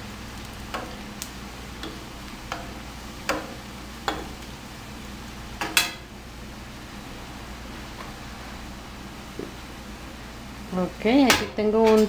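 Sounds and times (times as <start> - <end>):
slices sizzling in hot oil: 0.0 - 12.0
metal spoon clicking against pan: 0.7 - 1.0, 1.8 - 2.7
spoon knocking on pan: 0.7 - 1.1, 1.8 - 4.4.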